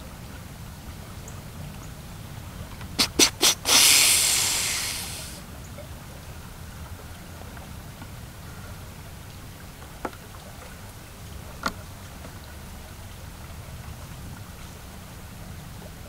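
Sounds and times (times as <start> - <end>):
deer snorting: 2.8 - 5.4
deer hissing wheeze: 2.9 - 5.4.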